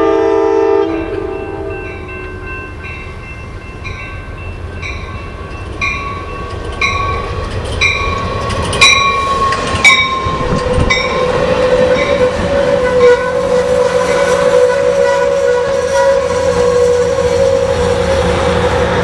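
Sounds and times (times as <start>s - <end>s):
train wheels rumbling: 0.0s - 19.0s
train bell ringing: 0.7s - 15.8s
metallic squeal: 6.8s - 18.8s.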